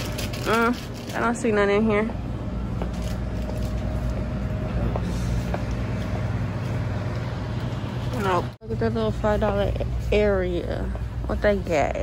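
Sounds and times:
low hum of shop interior: 0.0s - 12.0s.

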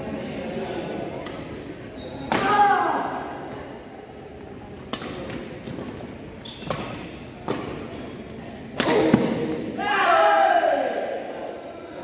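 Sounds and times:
badminton racket hitting shuttlecock: 4.9s - 9.7s.

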